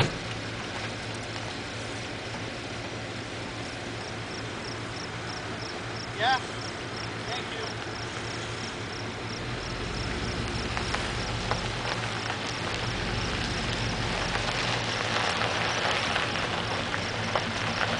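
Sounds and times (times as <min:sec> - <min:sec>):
outdoor rushing noise: 0:00.0 - 0:17.9
low hum: 0:07.9 - 0:17.9.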